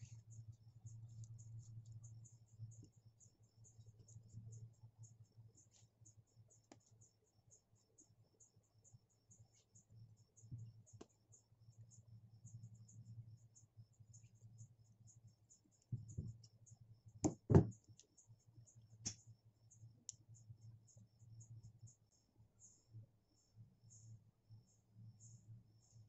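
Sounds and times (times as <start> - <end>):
faint low hum: 0.0 - 26.0
insect chirping: 0.0 - 26.0
knocks on a table: 17.2 - 17.7.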